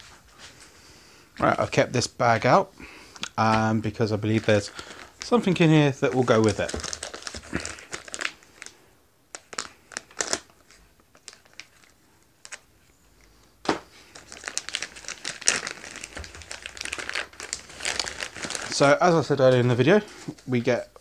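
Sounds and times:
plastic film crinkling: 0:03.9 - 0:12.7, 0:13.7 - 0:20.8.

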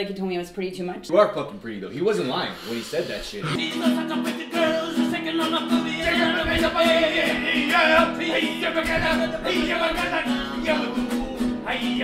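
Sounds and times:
music with singing voice: 0:03.4 - 0:12.0.

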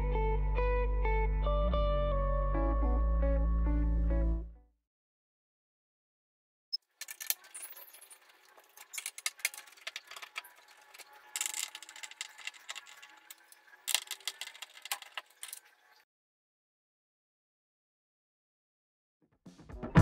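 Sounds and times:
small metallic clicks and rattles: 0:07.0 - 0:15.7.

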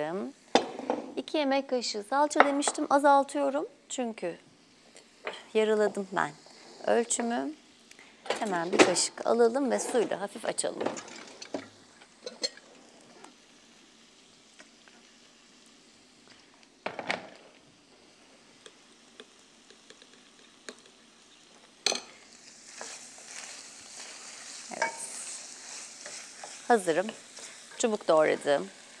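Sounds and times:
meat and onions sizzling: 0:00.0 - 0:29.0
wooden spoon stirring pot: 0:22.7 - 0:28.9.

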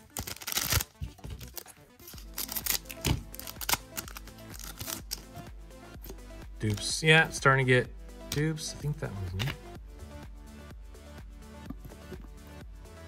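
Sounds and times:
wrapper crinkling: 0:00.0 - 0:05.3
wrapper ripping: 0:00.0 - 0:05.4
background music: 0:00.0 - 0:13.0.

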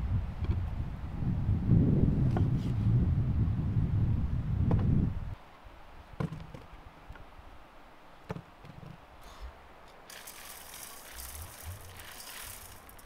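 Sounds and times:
salt grains sprinkling: 0:10.1 - 0:13.0.

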